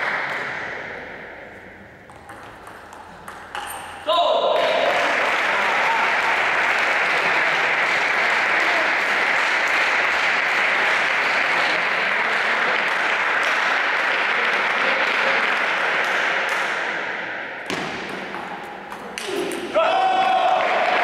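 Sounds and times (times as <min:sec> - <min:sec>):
spectators applauding: 0:04.6 - 0:16.4, 0:20.0 - 0:21.0.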